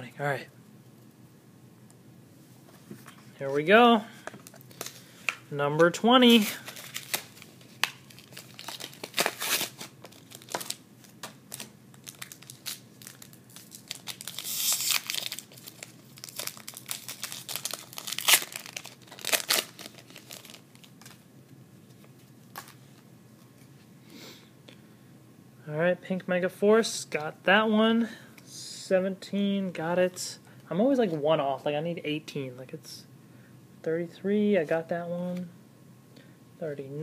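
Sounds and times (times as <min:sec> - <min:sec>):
wrapper tearing and crinkling: 0:06.4 - 0:21.2.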